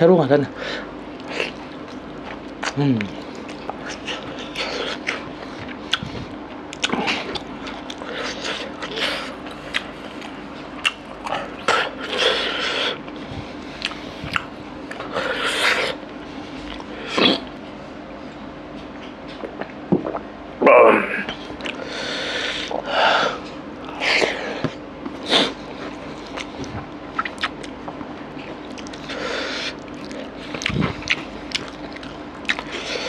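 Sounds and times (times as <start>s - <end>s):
chewing and lip smacks: 1.2s - 15.2s, 21.5s - 21.8s, 23.8s - 32.9s.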